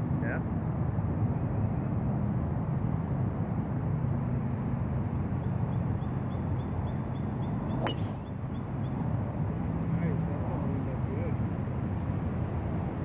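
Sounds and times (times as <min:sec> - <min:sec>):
golf club striking ball: 0:07.8 - 0:08.4.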